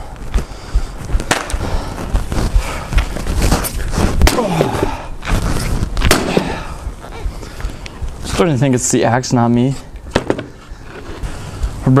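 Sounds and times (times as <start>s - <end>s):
wooden boards knocking and thudding: 10.1s - 10.5s.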